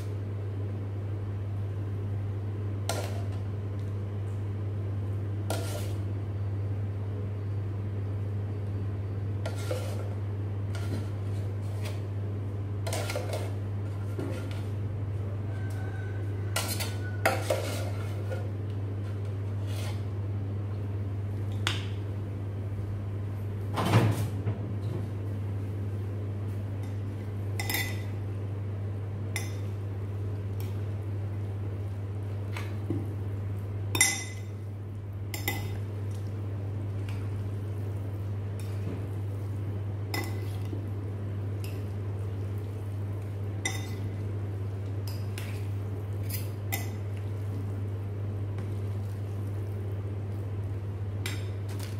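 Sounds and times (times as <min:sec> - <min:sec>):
steady low hum: 0:00.0 - 0:51.9
utensils clinking against ceramic bowl: 0:33.9 - 0:34.5, 0:43.6 - 0:44.2.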